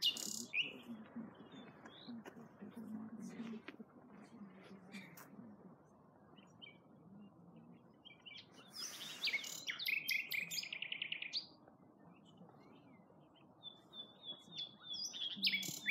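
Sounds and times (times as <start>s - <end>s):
nightingale singing: 0.0s - 2.2s, 6.3s - 15.9s.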